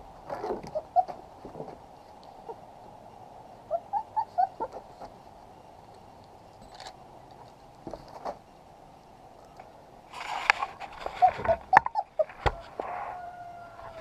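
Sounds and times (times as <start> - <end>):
puppies squeaking: 0.7 - 1.2, 3.7 - 4.8, 11.0 - 12.4.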